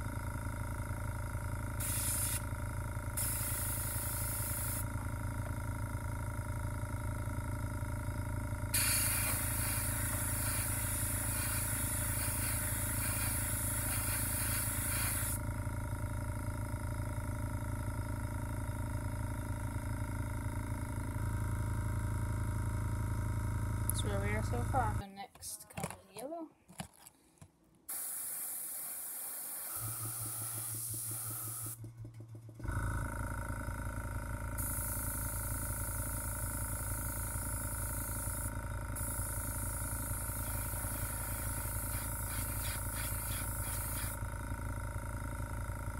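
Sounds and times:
air compressor humming: 0.0 - 45.9
airbrush hissing: 1.8 - 2.5, 3.2 - 4.9, 8.7 - 15.4, 27.9 - 31.8, 36.8 - 44.2.

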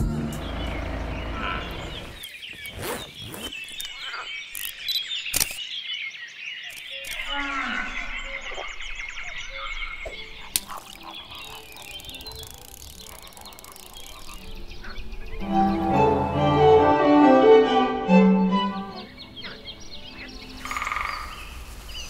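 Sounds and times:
birds chirping: 0.0 - 16.9, 18.1 - 22.0
low animal call: 0.5 - 2.2
sharp clicks: 2.1 - 5.6, 6.7 - 7.3, 10.4 - 14.6.

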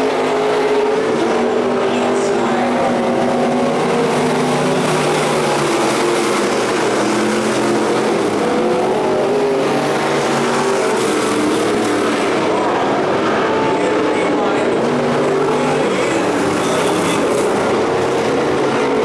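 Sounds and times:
race car engines: 0.0 - 19.0.

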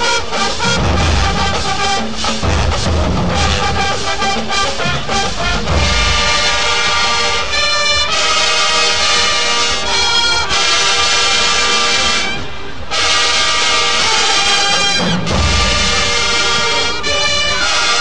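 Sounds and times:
marching band brass playing: 0.0 - 18.0.

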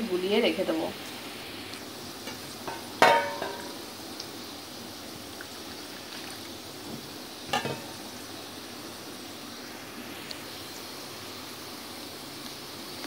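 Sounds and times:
steady low hiss: 0.0 - 13.0
utensil clinking against dish: 2.7 - 3.8.

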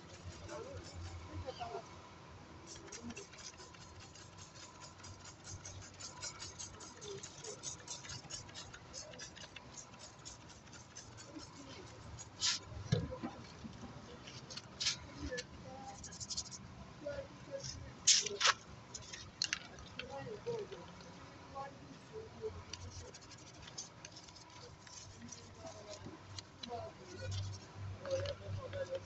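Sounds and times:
scratchy scrubbing crackles: 0.0 - 1.8, 2.7 - 16.6, 22.5 - 29.0
spray bottle hissing: 2.7 - 12.7.

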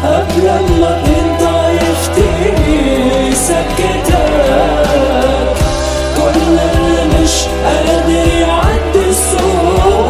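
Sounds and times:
pop song with drums and bass: 0.0 - 10.0.

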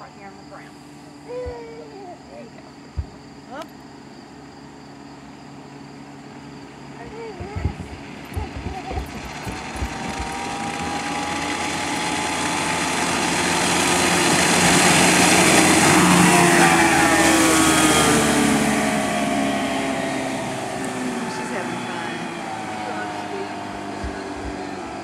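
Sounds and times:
outboard motor passing: 6.2 - 25.0
rushing spray: 8.8 - 25.0.

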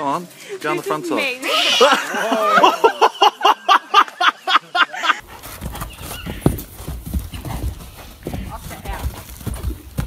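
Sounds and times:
person laughing: 1.4 - 5.2
horse hoofbeats on dirt: 5.2 - 10.0.

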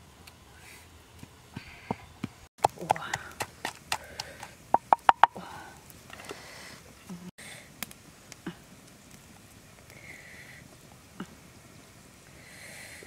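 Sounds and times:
pestle pounding in a mortar: 2.6 - 5.4.

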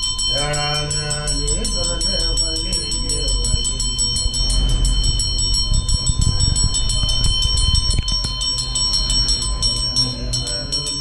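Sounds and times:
low rumble: 0.0 - 9.7
rhythmic percussion with jingling: 0.0 - 11.0.

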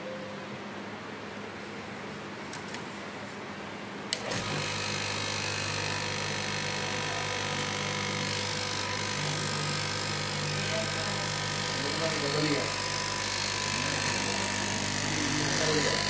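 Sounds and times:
cloth cutting machine motor: 4.1 - 16.0.

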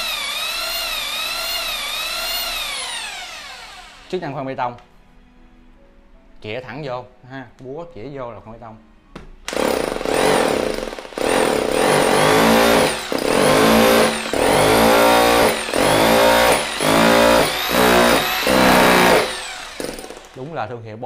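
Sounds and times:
rotary hammer drill motor whine: 0.0 - 4.1, 9.5 - 20.4.

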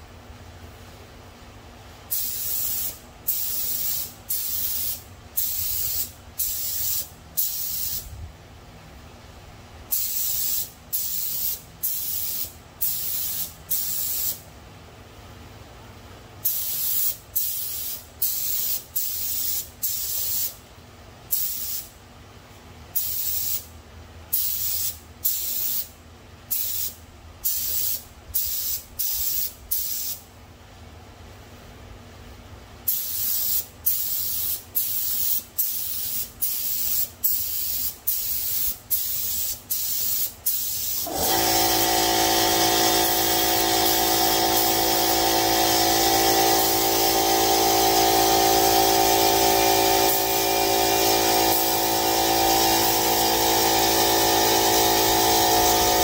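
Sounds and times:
spray gun hissing: 2.1 - 8.1, 9.9 - 14.4, 16.4 - 20.6, 32.9 - 56.0.

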